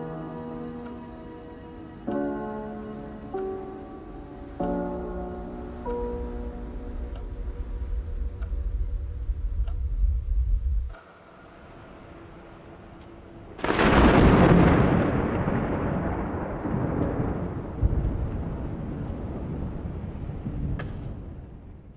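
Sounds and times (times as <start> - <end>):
low thunder rumble: 4.9 - 11.0, 13.6 - 21.9
loud thunderclap: 13.6 - 21.9.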